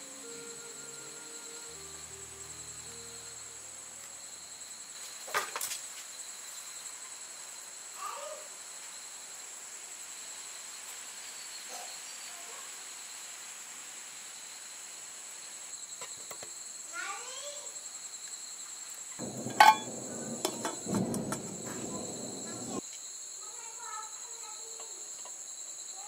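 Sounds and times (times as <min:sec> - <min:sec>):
insects chirring: 0:00.0 - 0:13.4, 0:14.0 - 0:26.0
faint falling call: 0:19.2 - 0:22.8.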